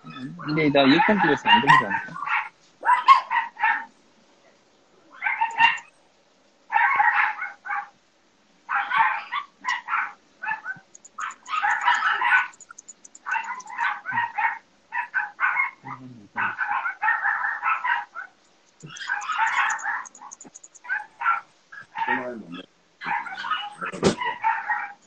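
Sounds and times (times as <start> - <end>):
dogs yapping: 0.4 - 3.9, 5.2 - 5.9, 6.7 - 8.0, 8.7 - 22.3, 23.0 - 25.0.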